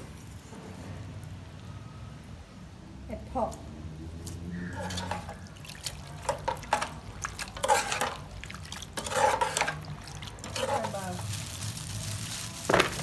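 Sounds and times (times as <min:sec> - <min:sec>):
spoon scraping and sloshing liquid: 0:04.7 - 0:11.4
metal spoon clinking on pot: 0:06.2 - 0:08.2, 0:09.0 - 0:11.1.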